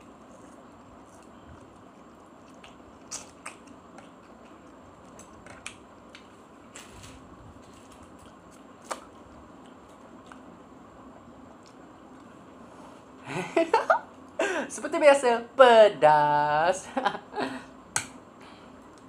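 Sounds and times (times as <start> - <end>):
person chewing: 0.0 - 6.5, 7.7 - 12.6
wet mouth clicks and smacks: 1.7 - 6.2.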